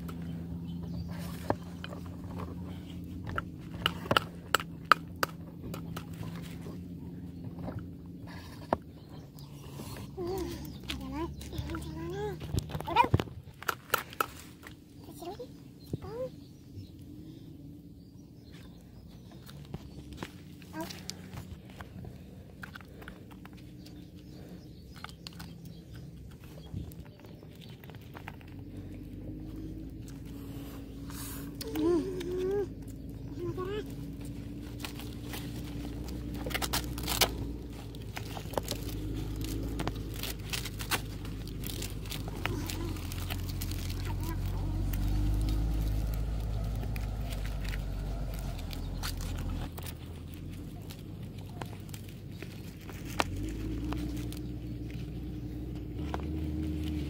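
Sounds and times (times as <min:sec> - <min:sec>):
low rumble: 0:14.4 - 0:57.0
leaves crackling and rustling: 0:26.2 - 0:57.0.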